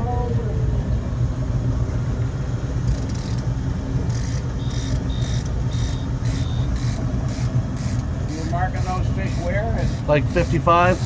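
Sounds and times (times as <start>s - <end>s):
boat engine rumbling: 0.0s - 11.0s
high clicking with beep tone: 4.1s - 8.0s.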